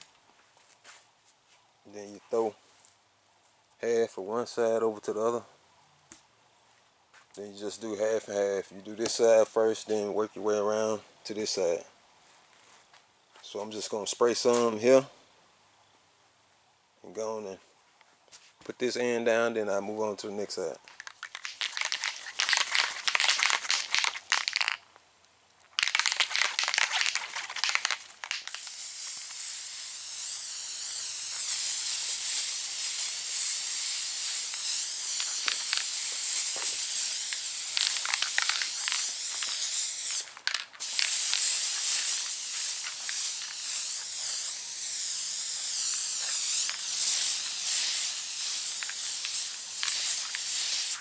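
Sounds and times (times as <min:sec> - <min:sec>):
short crackly spray bursts: 0:20.6 - 0:24.8, 0:25.8 - 0:51.0
aerosol spray can hissing: 0:21.0 - 0:24.8, 0:25.8 - 0:51.0.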